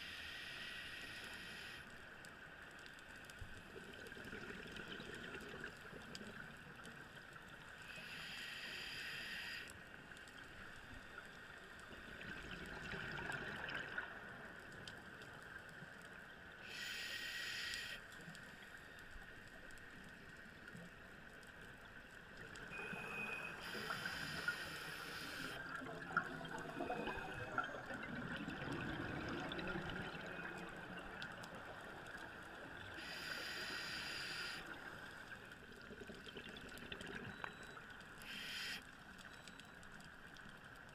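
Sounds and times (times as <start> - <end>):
diver breathing through regulator: 23.6 - 25.6, 33.0 - 34.7
bubbling gurgles: 25.6 - 31.0.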